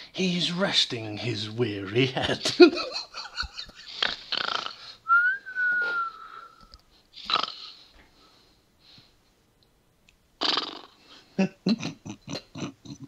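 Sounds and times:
man imitating snoring: 4.0 - 4.9, 7.2 - 7.7, 10.4 - 11.0.

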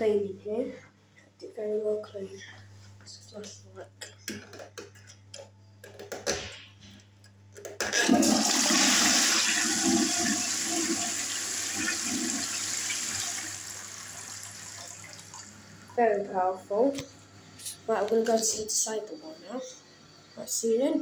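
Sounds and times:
toilet flushing: 7.8 - 15.9.

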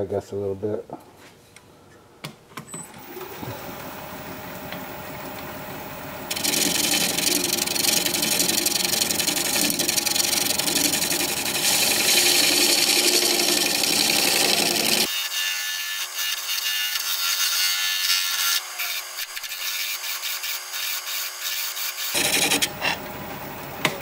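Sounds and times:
faint lathe hum: 3.0 - 15.8
gouge scraping spinning wood: 3.3 - 15.1, 22.1 - 23.0.

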